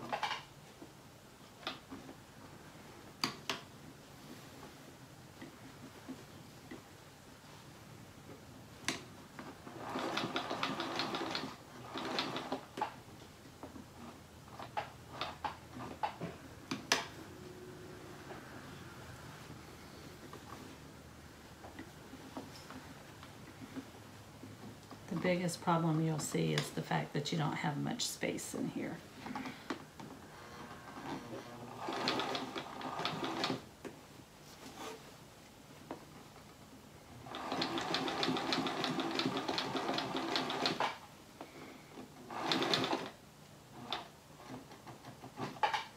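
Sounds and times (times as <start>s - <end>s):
sewing machine stitching: 9.4s - 13.0s, 30.3s - 33.6s, 37.2s - 41.0s, 42.2s - 45.9s
sewing machine clicks: 9.8s - 13.0s, 31.2s - 33.6s, 37.3s - 41.0s, 42.3s - 43.2s.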